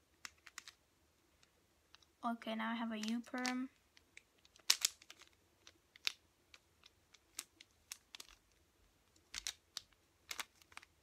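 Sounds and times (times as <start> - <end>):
puzzle cube clicking: 0.2 - 0.8, 3.0 - 11.0.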